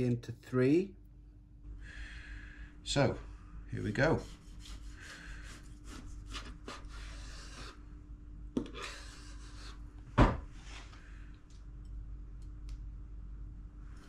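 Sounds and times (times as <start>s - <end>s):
knife sawing through fish skin: 4.0s - 7.8s.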